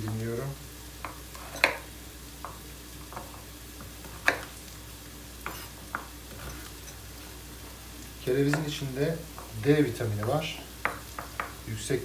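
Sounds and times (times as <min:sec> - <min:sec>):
onions sizzling in a pan: 0:00.0 - 0:12.0
knife chopping on wooden board: 0:01.0 - 0:01.8, 0:04.0 - 0:04.5.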